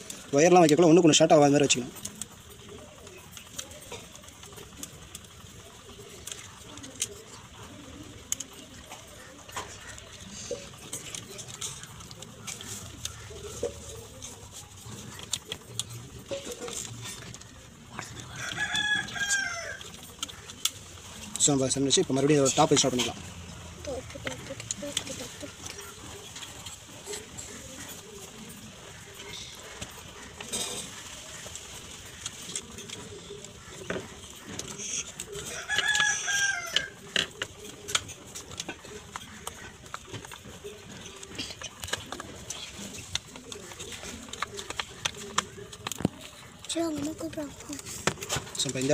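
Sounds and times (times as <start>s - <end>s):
rooster crowing: 18.2s - 20.0s, 35.4s - 37.1s
clicks of handling wires and plastic: 32.1s - 48.9s.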